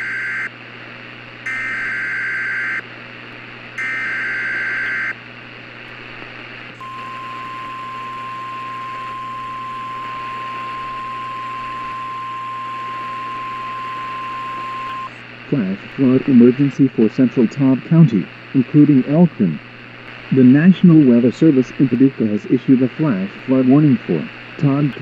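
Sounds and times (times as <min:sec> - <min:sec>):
steady alarm tone: 0:01.5 - 0:02.8, 0:03.8 - 0:05.2, 0:06.8 - 0:15.2
radio hiss: 0:03.2 - 0:25.0.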